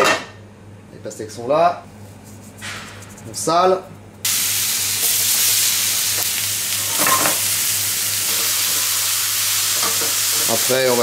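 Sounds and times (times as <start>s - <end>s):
fruit sizzling in a frying pan: 4.2s - 11.0s.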